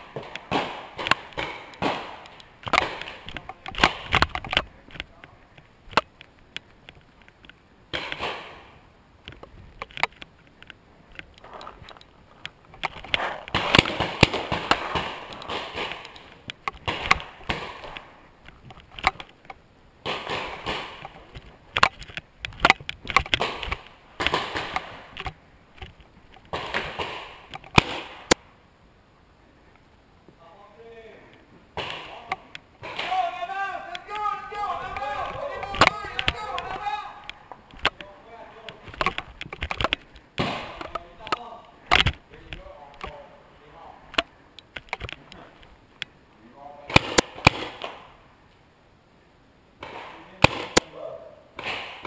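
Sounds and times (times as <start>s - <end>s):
paintballs smacking wood: 0.0s - 5.2s, 5.9s - 28.4s, 31.8s - 43.2s
movement noise: 0.0s - 28.4s, 32.0s - 46.1s.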